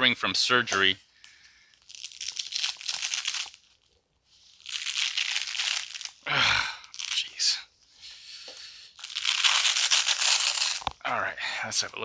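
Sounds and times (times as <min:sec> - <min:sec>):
velcro tearing apart: 0:01.8 - 0:03.9, 0:04.5 - 0:06.2, 0:06.8 - 0:07.4, 0:09.0 - 0:11.0.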